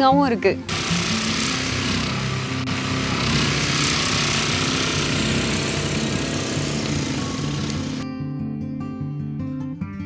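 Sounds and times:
background music: 0:00.0 - 0:10.0
small petrol engine running: 0:00.7 - 0:08.0.

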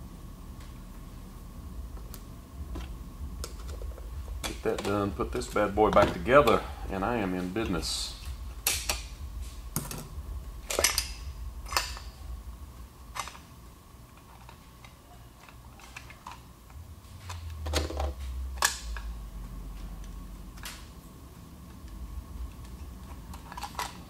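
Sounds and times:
faint steady hum: 0:00.0 - 0:24.0
metal parts clinking and knocking: 0:10.7 - 0:12.1, 0:22.7 - 0:24.0.

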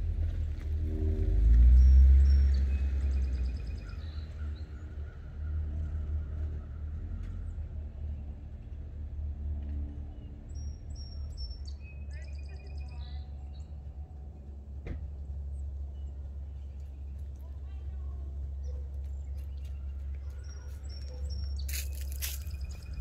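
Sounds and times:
car exhaust drone: 0:00.0 - 0:06.6
birds chirping in trills: 0:10.1 - 0:23.0.

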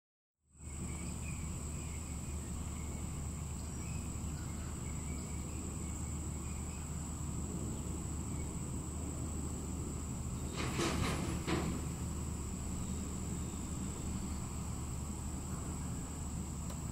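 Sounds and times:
low steady rumble: 0:00.5 - 0:16.9
faint bird chirps: 0:00.6 - 0:07.0
insects trilling: 0:00.6 - 0:16.9.

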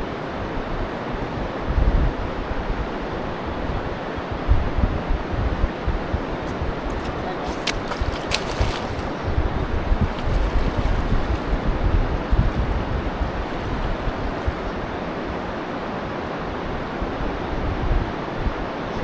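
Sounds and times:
wind buffeting microphone: 0:00.0 - 0:19.0
river water rushing: 0:06.4 - 0:17.0.

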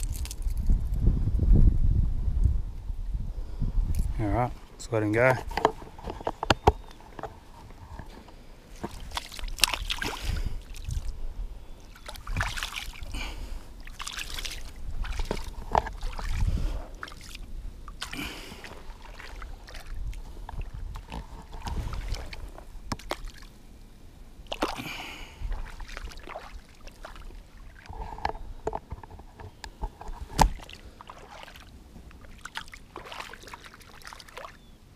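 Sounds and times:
shallow water splashing: 0:08.7 - 0:11.2, 0:11.8 - 0:23.6, 0:24.4 - 0:28.4, 0:30.2 - 0:34.8.

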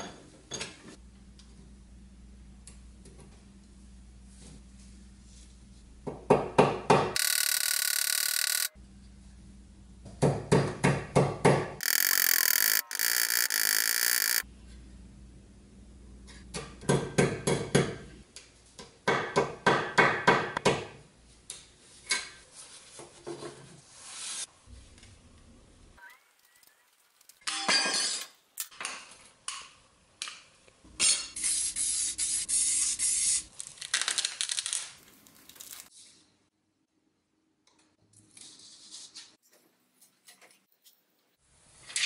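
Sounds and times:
high-pitched ringing noise: 0:11.8 - 0:14.4.

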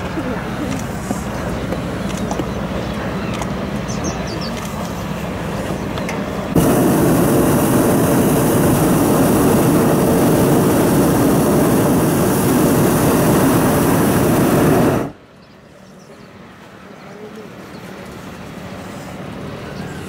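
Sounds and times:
propane burner rushing blast: 0:04.7 - 0:15.2.

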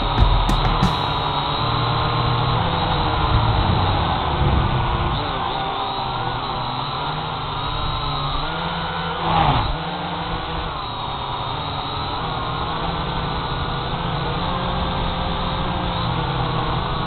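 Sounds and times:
drone propellers buzzing: 0:03.6 - 0:11.3.

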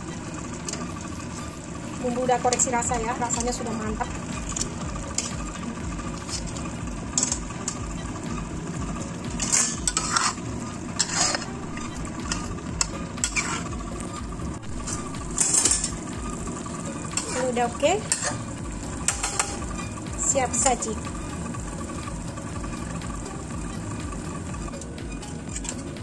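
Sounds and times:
metal utensils scraping a wok: 0:00.2 - 0:08.3, 0:09.0 - 0:13.8, 0:14.7 - 0:21.0.

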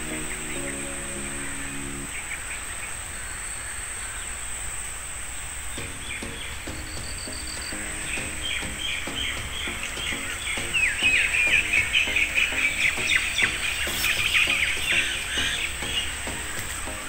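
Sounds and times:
background music with low pulse: 0:00.0 - 0:02.2, 0:05.7 - 0:17.0
small birds chirping: 0:00.0 - 0:17.0.

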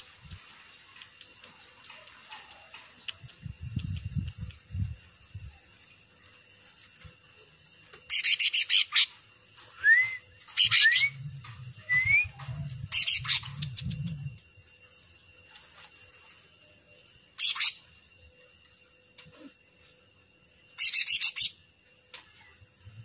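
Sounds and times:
bird singing chattering phrases: 0:10.5 - 0:14.0, 0:20.8 - 0:21.6
low rumble: 0:10.6 - 0:14.7.

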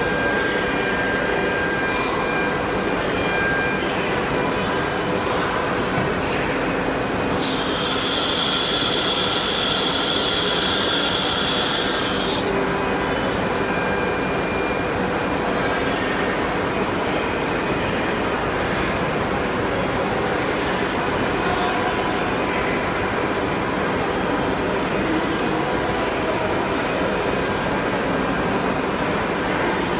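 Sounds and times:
machine noise: 0:00.0 - 0:15.8
loud compressed-air hiss: 0:07.3 - 0:12.4.

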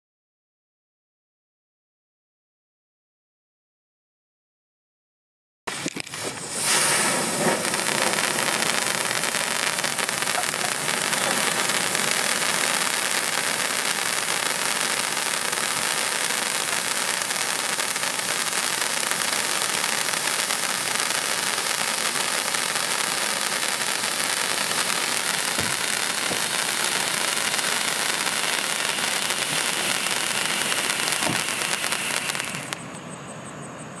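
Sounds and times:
fountain firework hissing: 0:05.7 - 0:32.8.

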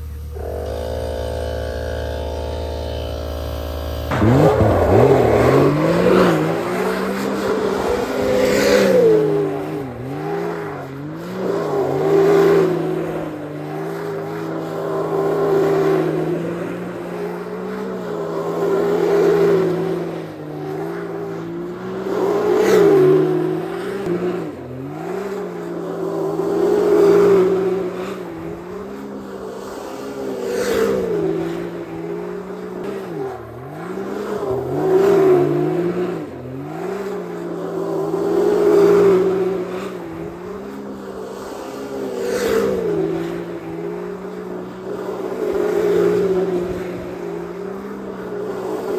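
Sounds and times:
engine revving high: 0:00.0 - 0:28.6
tires spinning on asphalt: 0:00.0 - 0:48.9.

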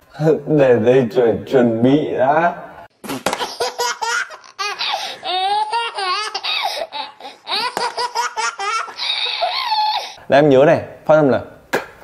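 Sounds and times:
baby laughing: 0:03.0 - 0:10.2.

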